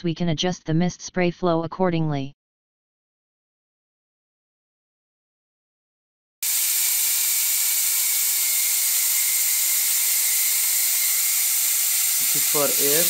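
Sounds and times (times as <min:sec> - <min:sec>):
coolant mist nozzle hissing: 0:06.4 - 0:13.0.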